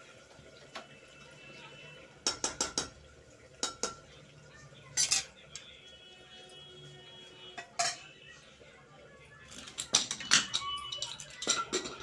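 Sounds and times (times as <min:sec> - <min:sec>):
metal ladle clinking on pot: 0:02.2 - 0:03.0, 0:03.6 - 0:04.0, 0:05.0 - 0:05.6, 0:07.6 - 0:08.1, 0:09.6 - 0:12.0.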